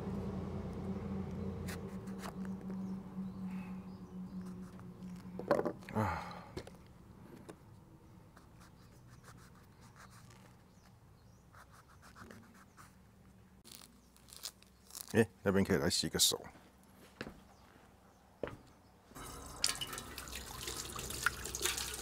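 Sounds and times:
low steady hum: 0.0s - 8.4s.

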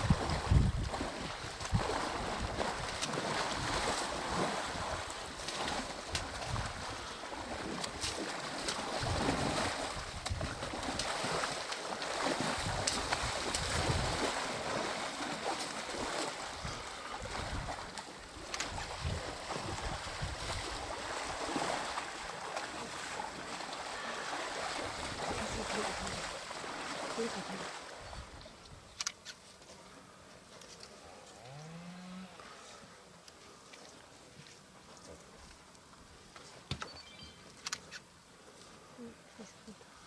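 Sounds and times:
water splashing and sloshing: 0.0s - 29.7s.

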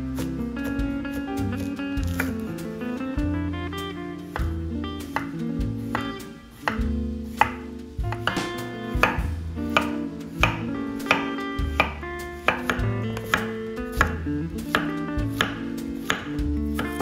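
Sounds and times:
background music: 0.0s - 17.0s
knife chopping on cutting board: 4.3s - 17.0s.

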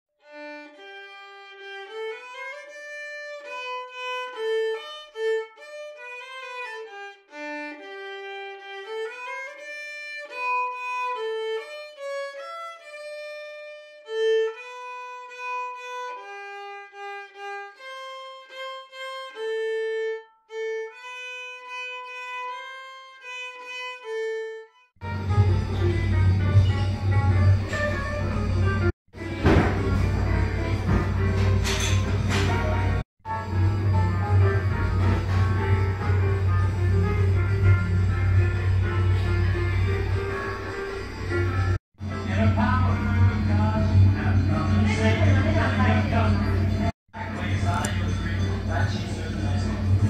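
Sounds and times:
solo violin melody: 0.2s - 31.6s.

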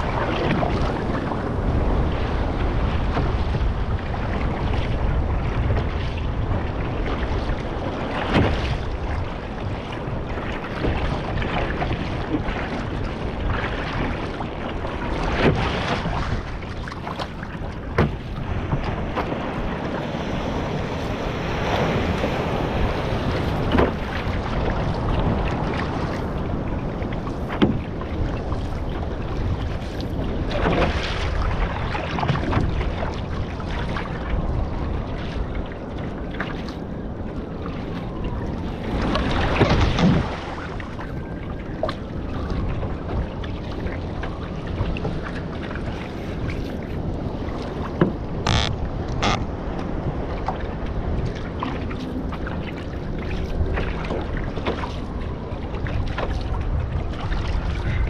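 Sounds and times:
ocean water rushing and splashing: 0.0s - 58.0s
wind buffeting microphone: 0.0s - 58.0s
paddle hits on water: 7.2s - 14.4s, 15.1s - 34.1s, 38.9s - 41.0s, 47.5s - 49.5s.

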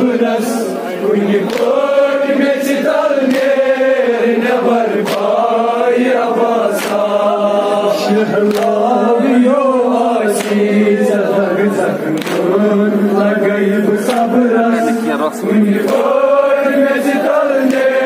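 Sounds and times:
crowd of men chanting: 0.0s - 18.0s
sharp slaps: 1.4s - 1.9s, 3.2s - 3.7s, 5.0s - 5.4s, 6.7s - 7.2s, 8.4s - 8.8s, 10.3s - 10.7s, 12.1s - 12.6s, 14.0s - 14.4s, 15.8s - 16.2s, 17.6s - 18.0s.

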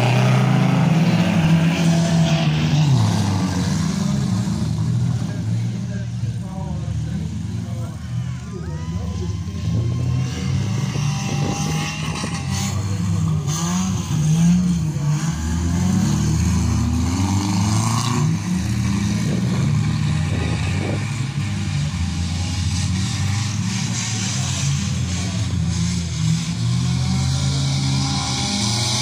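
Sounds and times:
motor engines revving: 0.0s - 29.0s.

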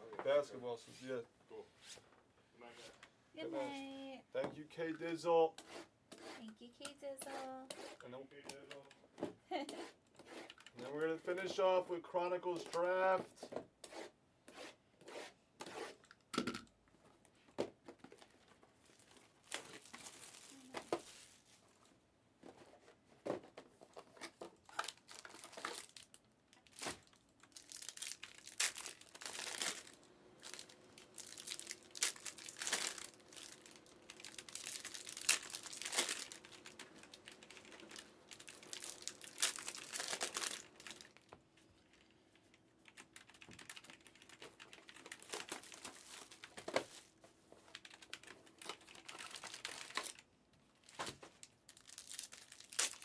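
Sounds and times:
plastic shrink wrap crinkling: 18.2s - 21.9s, 23.9s - 53.0s.

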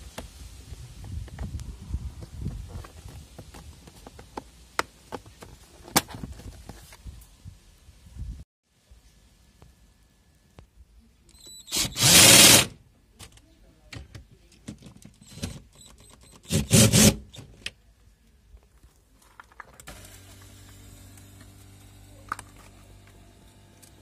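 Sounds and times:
cordless drill running: 11.6s - 12.7s, 19.9s - 22.1s.

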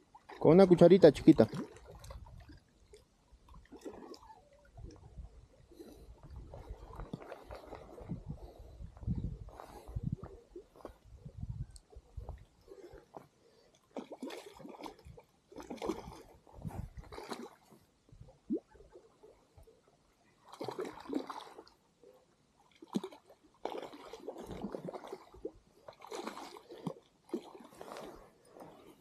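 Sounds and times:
fish splashing at water surface: 20.5s - 21.7s, 22.8s - 27.7s.

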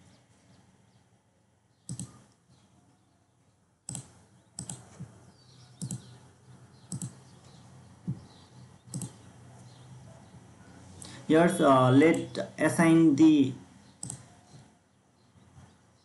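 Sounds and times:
computer mouse clicking: 1.9s - 2.4s, 3.9s - 5.1s, 5.8s - 6.1s, 6.9s - 7.6s, 8.9s - 9.3s, 14.0s - 14.7s.

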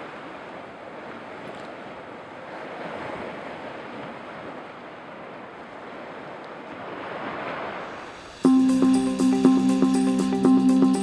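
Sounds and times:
surf washing on rocky shore: 0.0s - 8.5s.

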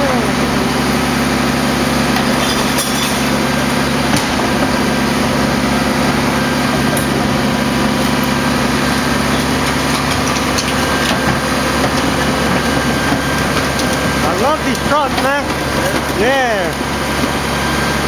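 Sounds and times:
diesel engine idling: 0.0s - 18.0s
trash cart knocking: 2.0s - 17.4s.

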